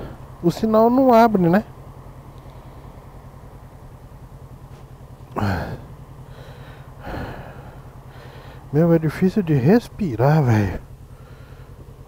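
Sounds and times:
motorcycle engine idling: 0.0s - 12.0s
person breathing out heavily: 5.4s - 8.7s, 11.2s - 11.8s.

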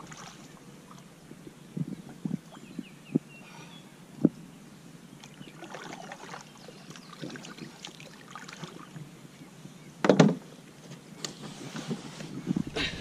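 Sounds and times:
paddle splashing in water: 5.3s - 9.0s
paddle or hull thump: 10.0s - 10.4s.

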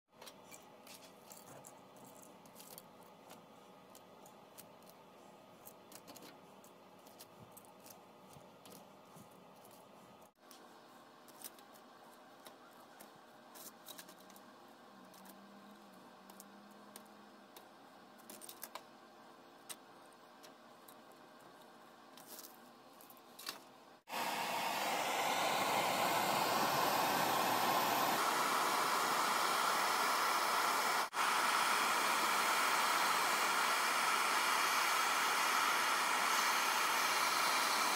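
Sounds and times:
gas torch hissing: 24.1s - 37.9s.

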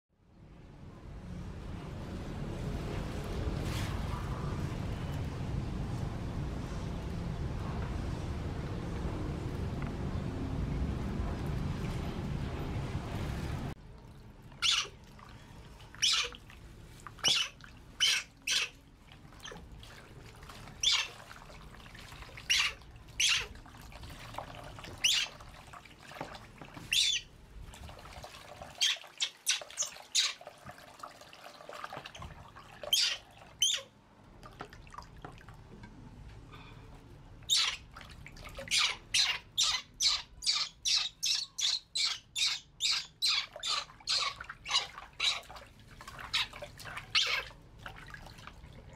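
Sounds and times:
faint water splashing: 0.8s - 48.9s
baby monkey squealing: 14.6s - 14.9s, 16.0s - 16.3s, 17.2s - 18.7s, 38.7s - 45.4s.

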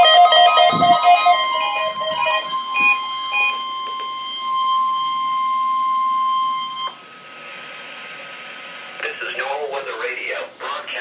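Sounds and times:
shrill alert tone: 0.0s - 6.9s
faint radio hiss: 7.3s - 11.0s.

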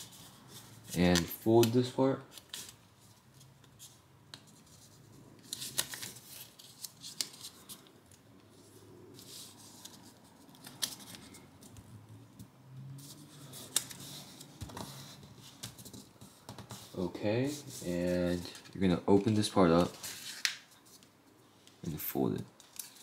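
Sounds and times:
paper crinkling and rustling: 0.0s - 8.2s, 22.6s - 23.0s.

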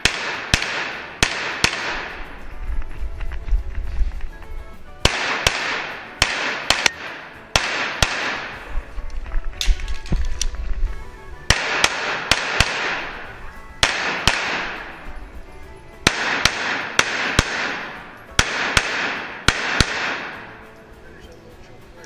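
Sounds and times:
pistol shots in a reverberant room: 0.0s - 2.3s, 5.0s - 8.7s, 11.5s - 15.0s, 16.0s - 20.5s.

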